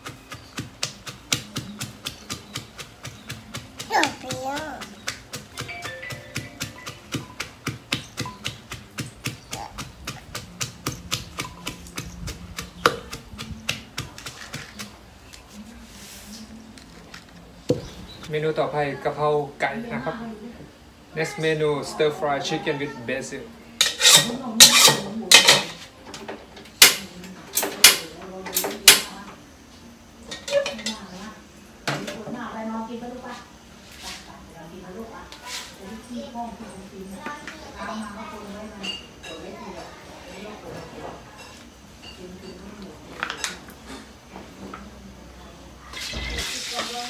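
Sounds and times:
pestle pounding in mortar: 0:00.0 - 0:15.0
metal spatula scraping a wok: 0:23.8 - 0:25.8, 0:35.3 - 0:35.8.

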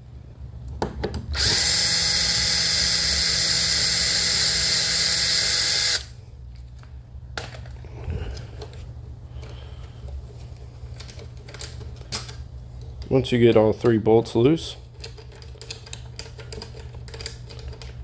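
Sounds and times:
electric drill whining: 0:01.4 - 0:06.1.

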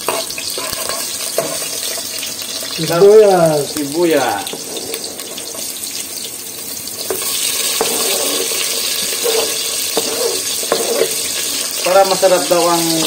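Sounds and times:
garlic sizzling in hot oil: 0:00.0 - 0:13.0
onion scraped off cutting board: 0:07.2 - 0:11.2.

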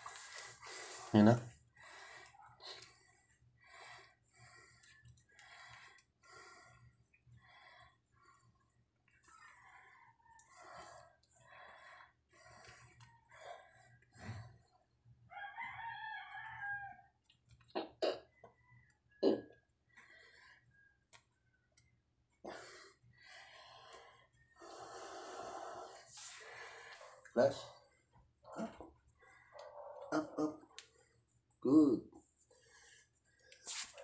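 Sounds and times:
rustling and breathy noises: 0:00.0 - 0:15.1, 0:22.4 - 0:34.0.

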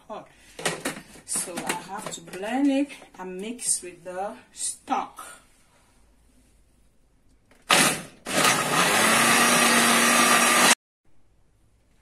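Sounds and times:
blender motor running: 0:07.7 - 0:10.8.

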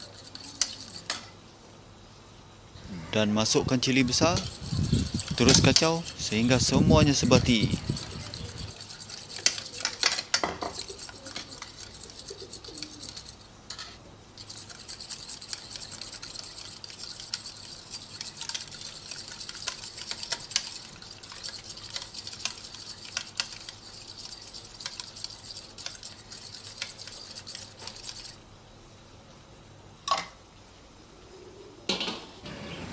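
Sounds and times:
fork beating eggs in a bowl: 0:00.0 - 0:01.3, 0:03.6 - 0:13.5, 0:14.4 - 0:28.4.

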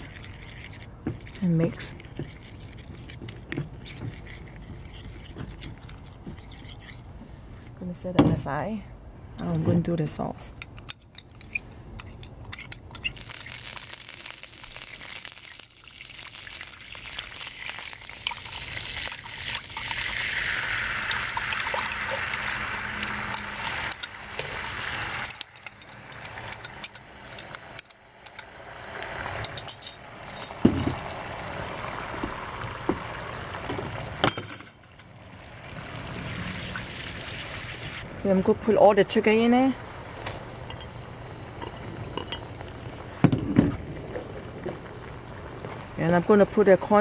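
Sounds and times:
sauce sizzling in hot wok: 0:13.0 - 0:29.4.

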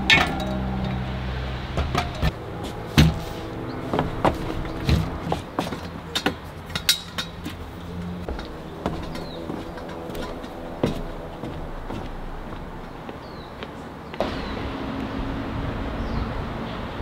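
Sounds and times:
metal gear knocking and clinking: 0:01.8 - 0:02.4.

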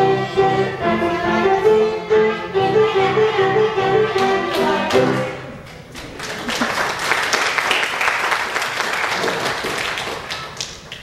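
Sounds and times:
music: 0:00.0 - 0:05.7
audience applauding: 0:04.5 - 0:11.0.

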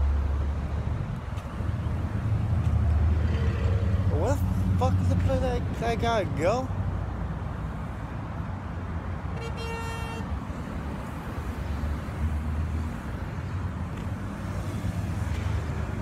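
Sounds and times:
traffic rumble: 0:00.0 - 0:16.0
vehicle horn honking: 0:09.3 - 0:10.3.

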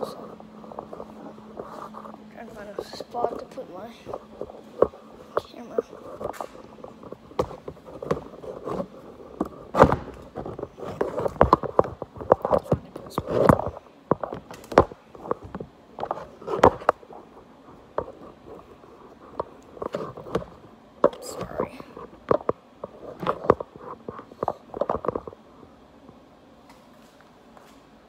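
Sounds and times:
cloth rubbing on microphone: 0:00.0 - 0:11.4.

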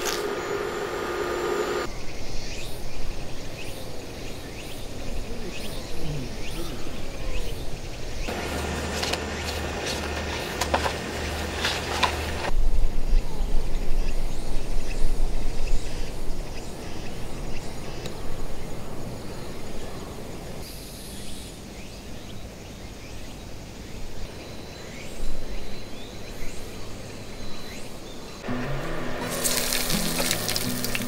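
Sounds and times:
faint insect calls: 0:13.1 - 0:28.4.

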